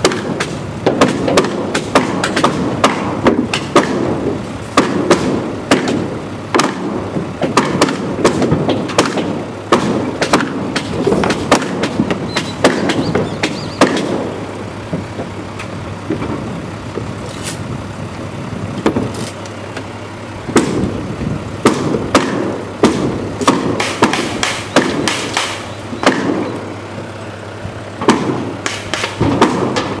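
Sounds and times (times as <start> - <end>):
mallets knocking wood: 7.4 - 14.2, 21.6 - 26.5.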